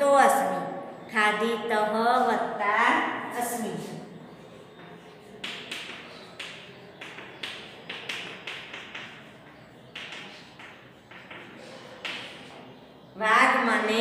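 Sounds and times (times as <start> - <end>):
chalk tapping on chalkboard: 5.2 - 12.7.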